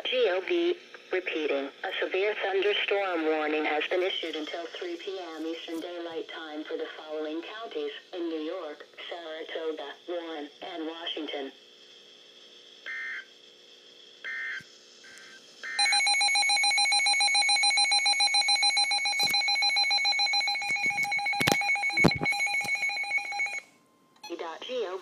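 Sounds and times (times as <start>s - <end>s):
electronic data chirps: 15.7s - 23.6s
fast-pulsing electronic alarm beep: 15.7s - 23.6s.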